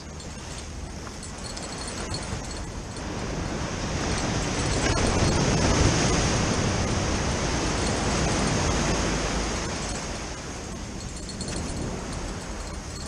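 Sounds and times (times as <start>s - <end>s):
ocean waves breaking: 0.0s - 13.0s.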